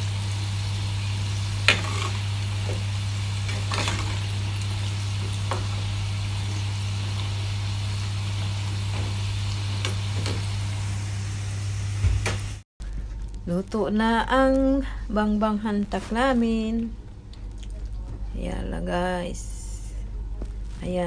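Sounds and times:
dough sizzling in hot oil: 0:00.0 - 0:12.6
steady low hum: 0:00.0 - 0:21.0.

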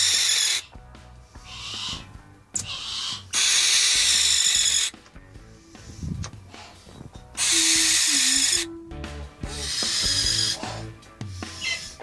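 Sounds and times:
owl hissing screeches: 0:00.0 - 0:05.0, 0:07.4 - 0:08.7, 0:09.4 - 0:12.0
background music: 0:00.0 - 0:12.0.

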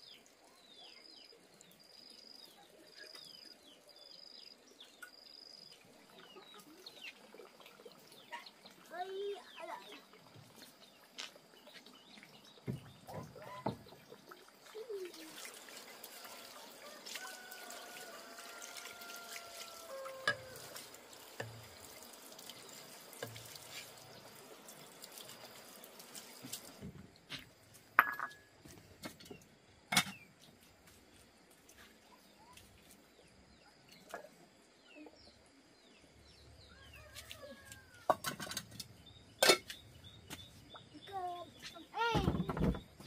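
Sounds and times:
water trickling: 0:04.7 - 0:28.5.

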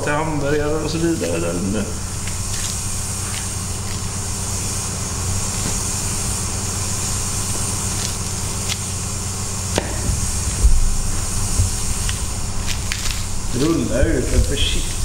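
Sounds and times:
steady low hum with hiss: 0:00.0 - 0:15.0
low thump: 0:09.8 - 0:11.8.

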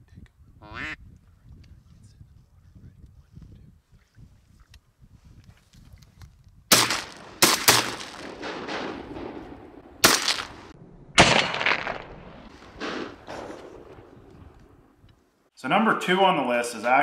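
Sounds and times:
shotgun blasts with echo: 0:06.7 - 0:14.9.

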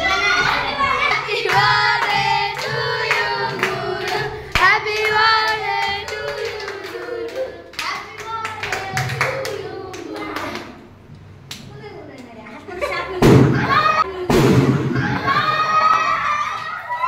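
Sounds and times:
group of voices singing: 0:00.0 - 0:10.8.

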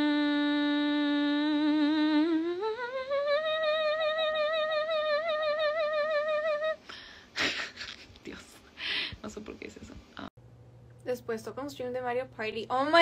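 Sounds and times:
woman humming: 0:00.0 - 0:06.8.

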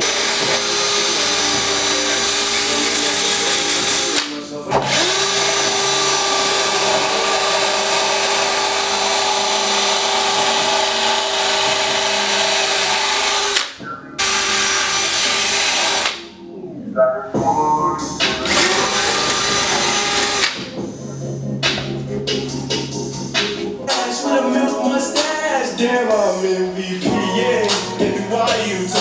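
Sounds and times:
drill wire wheel scrubbing metal: 0:00.0 - 0:13.6, 0:14.2 - 0:16.2, 0:18.4 - 0:20.6.

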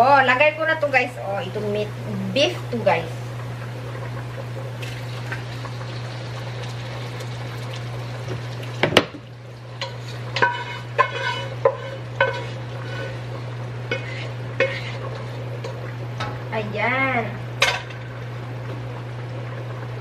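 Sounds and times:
steady low hum: 0:00.0 - 0:20.0
beef sizzling in a wok: 0:04.8 - 0:16.4.

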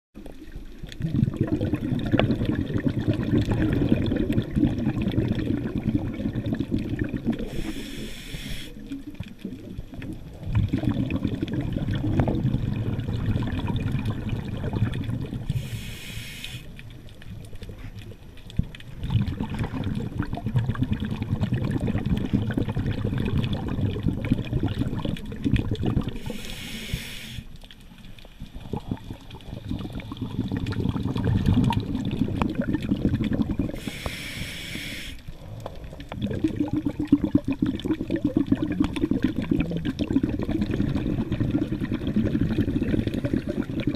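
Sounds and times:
underwater bubbling rumble: 0:00.2 - 0:43.9
scuba regulator hiss: 0:07.5 - 0:08.9, 0:15.5 - 0:16.8, 0:26.2 - 0:27.6, 0:33.8 - 0:35.3.

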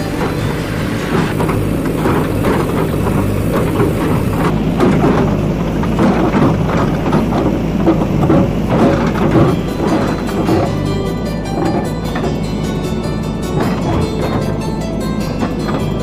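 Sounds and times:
bucket scraping and knocking: 0:00.0 - 0:12.8
diesel engine running under load: 0:00.0 - 0:16.0.

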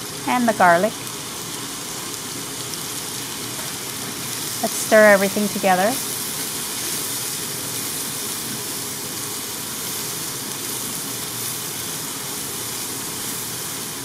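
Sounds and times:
vegetables sizzling in a pot: 0:00.0 - 0:14.0.

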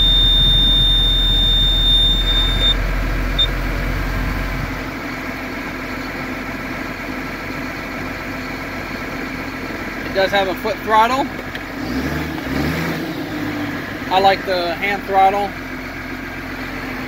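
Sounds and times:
high-pitched warning beeps: 0:00.0 - 0:02.8
steady machine hum: 0:00.0 - 0:05.5
tractor engine rumble: 0:00.0 - 0:17.0.

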